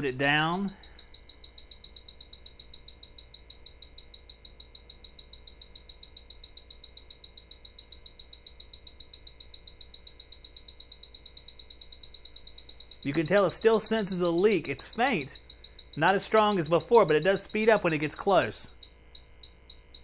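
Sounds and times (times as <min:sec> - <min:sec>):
leak detector beeping fast: 0:00.0 - 0:20.0.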